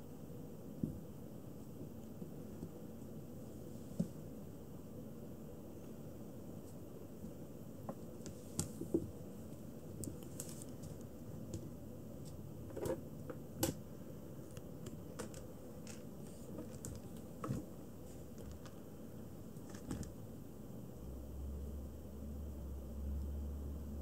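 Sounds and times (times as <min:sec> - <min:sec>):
kitten claws scratching plastic: 0:15.1 - 0:17.7.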